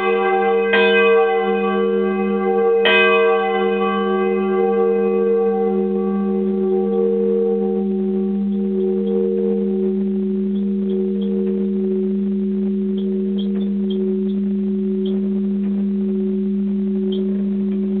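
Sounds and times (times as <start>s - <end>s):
church bell ringing: 0.0s - 9.8s.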